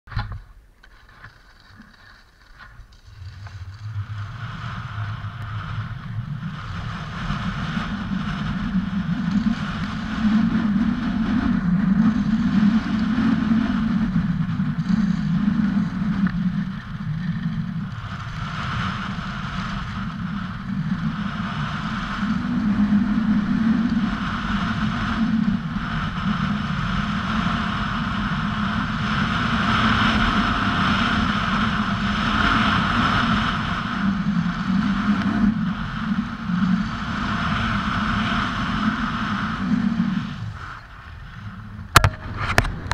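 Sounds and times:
skis scraping on snow: 0.8s - 23.1s
wind rushing over microphone: 2.6s - 42.9s.

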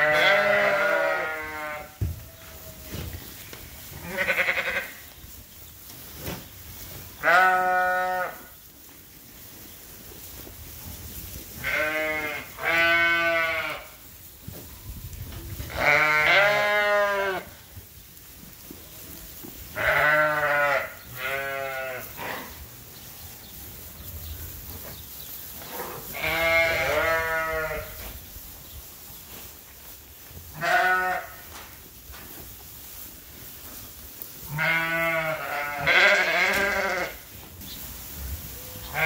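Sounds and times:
sheep bleating: 0.0s - 1.9s, 4.0s - 5.0s, 7.2s - 8.4s, 11.6s - 13.8s, 15.7s - 17.5s, 19.8s - 22.5s, 26.1s - 27.9s, 30.6s - 31.4s, 34.5s - 37.2s.

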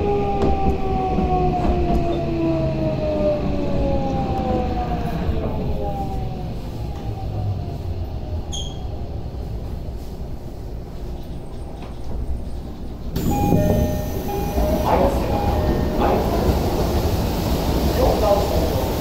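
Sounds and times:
train car low rumble: 0.0s - 19.0s
train doors sliding open: 9.6s - 19.0s
platform ambience: 13.2s - 17.4s.

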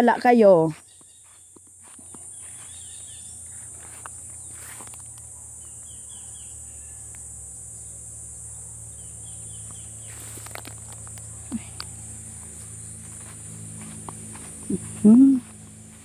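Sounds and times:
footsteps through undergrowth: 0.0s - 5.2s, 10.0s - 11.3s, 12.1s - 16.0s
insects buzzing: 0.0s - 16.0s
bird chirping: 0.7s - 3.7s, 5.4s - 7.2s, 8.9s - 10.4s.

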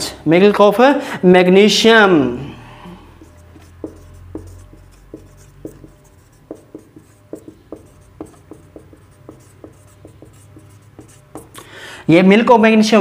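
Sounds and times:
marker writing on whiteboard: 3.1s - 11.8s.

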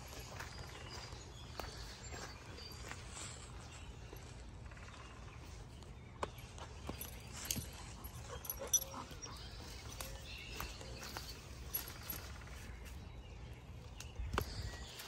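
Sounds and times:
footsteps in dry leaves: 0.0s - 4.5s, 9.4s - 13.8s.

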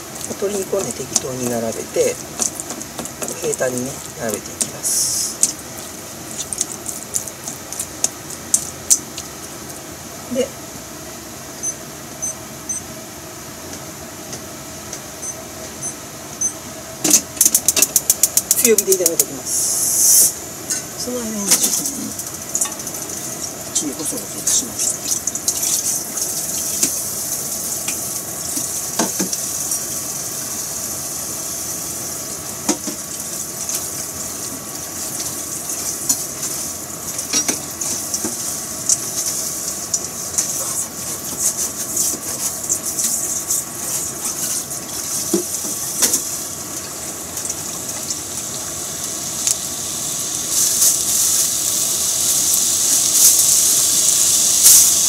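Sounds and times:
chicken sizzling in a pan: 0.0s - 10.5s, 17.6s - 55.0s
oil pops and crackles: 2.2s - 3.4s, 5.4s - 9.8s, 17.4s - 19.2s.

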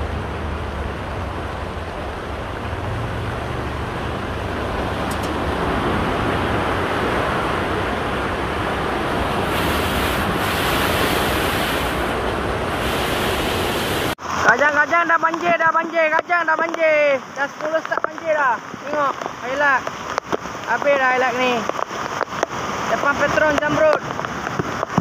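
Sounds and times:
floodwater rushing down a drain: 0.0s - 25.0s.

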